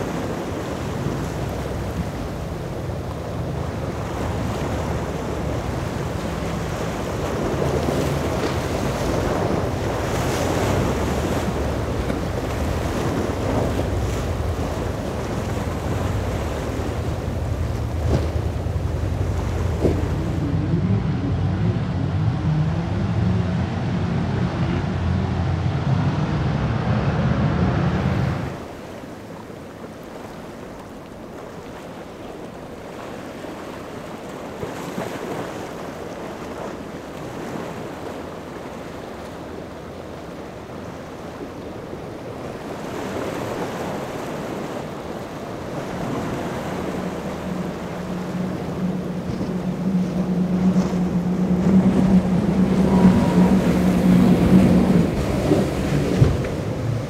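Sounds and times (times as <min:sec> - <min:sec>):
wind on microphone: 0:00.0 - 0:28.7, 0:41.9 - 0:57.0
powerboat engines running: 0:00.0 - 0:57.0
waves washing: 0:00.0 - 0:57.0.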